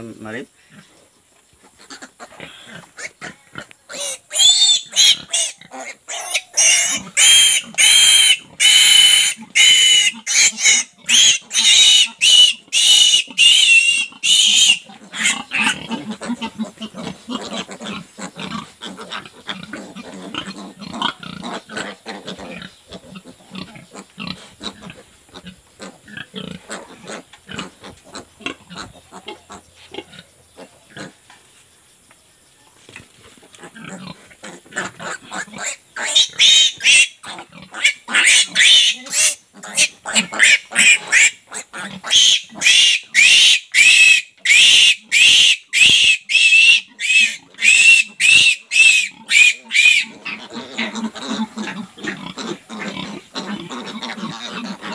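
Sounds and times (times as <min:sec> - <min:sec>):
pig grunting: 0:01.6 - 0:04.3, 0:14.0 - 0:31.2, 0:33.4 - 0:42.8, 0:48.9 - 0:54.9
piglet squealing: 0:01.8 - 0:22.6, 0:34.8 - 0:54.9.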